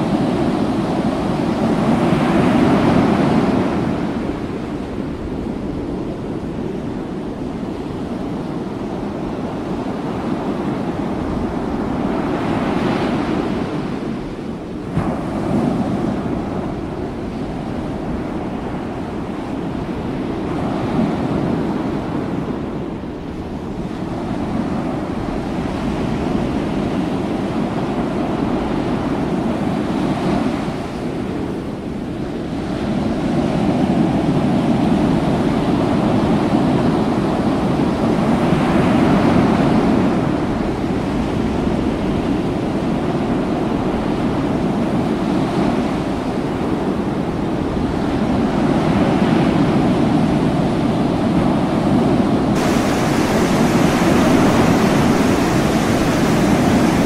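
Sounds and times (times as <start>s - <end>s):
wind buffeting microphone: 0.0s - 57.0s
sea washing into ship hull: 52.5s - 57.0s
wave pouring over deck: 52.6s - 57.0s.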